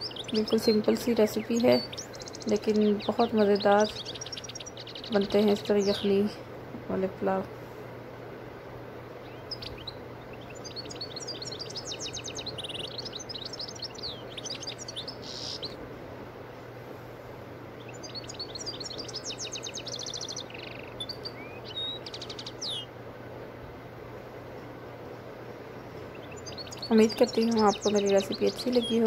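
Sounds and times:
small bird chirping and trilling: 0.0 - 6.3, 9.2 - 15.8, 17.8 - 22.9, 26.1 - 29.0
steady low hum: 0.0 - 29.0.

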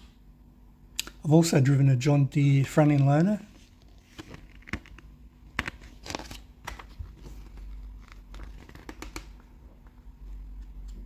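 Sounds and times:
glossy pages rustling: 2.9 - 11.0.

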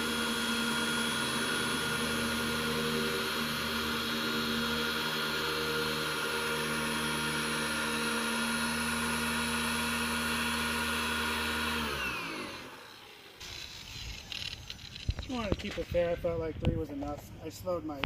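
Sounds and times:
electric polisher running: 0.0 - 13.7.

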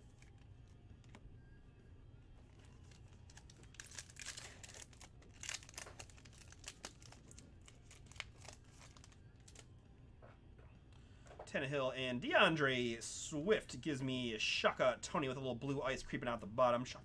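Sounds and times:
card pack wrapper tearing: 2.5 - 9.7.

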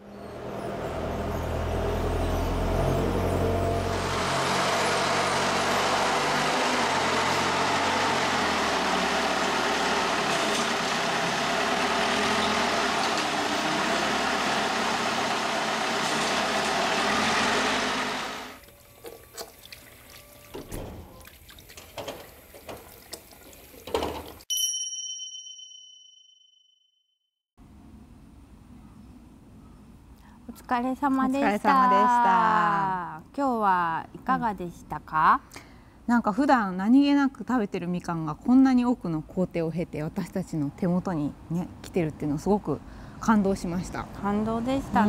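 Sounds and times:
forklift engine running: 1.0 - 18.6
bright chime: 24.5 - 26.7.

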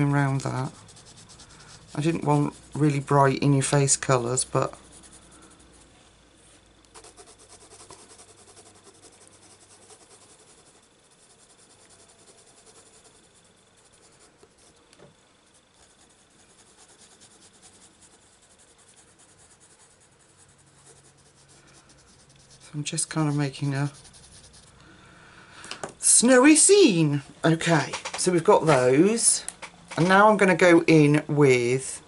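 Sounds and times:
pencil scratching on paper: 0.0 - 5.9, 7.0 - 14.8, 15.5 - 24.7.

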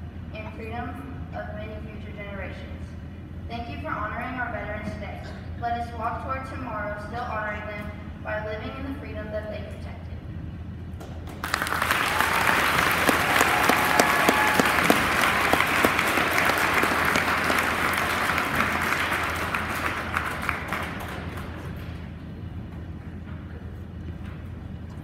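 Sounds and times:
audience applauding: 11.2 - 22.1.

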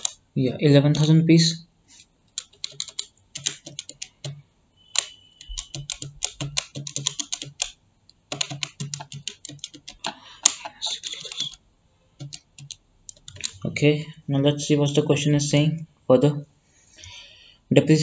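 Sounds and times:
keyboard key clicks: 2.4 - 4.4, 5.0 - 11.6, 12.2 - 13.6.

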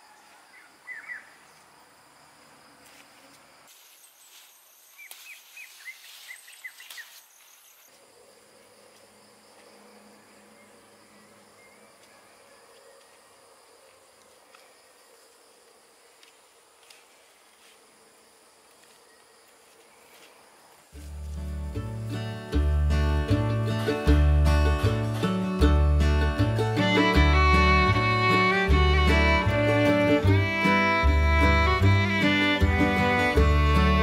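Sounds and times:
high insect drone: 0.1 - 21.6
bird chirps: 0.6 - 1.5, 3.8 - 8.0.

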